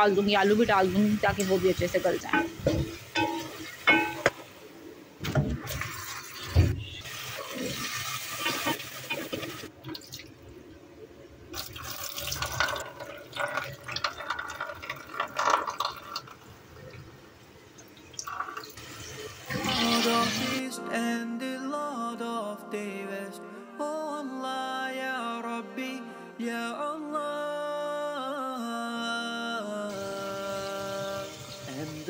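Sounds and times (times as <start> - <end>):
potatoes rinsed in colander: 0.0 - 4.5, 5.2 - 10.2, 11.6 - 16.4, 18.2 - 20.6
pots knocking: 2.2 - 4.6
tap water running into sink: 5.2 - 10.3, 11.6 - 16.4, 18.0 - 20.5.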